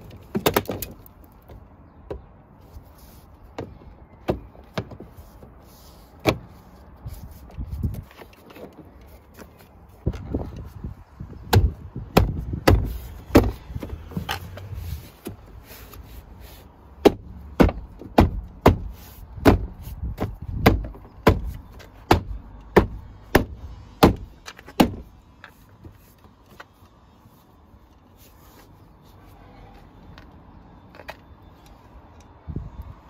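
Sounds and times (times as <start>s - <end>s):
hand thumping car door panel: 11.4s - 13.9s, 17.0s - 25.1s.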